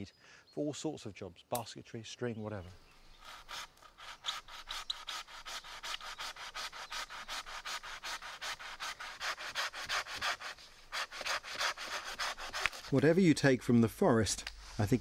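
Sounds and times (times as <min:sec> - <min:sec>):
hand saw cutting wood: 0:03.2 - 0:13.0.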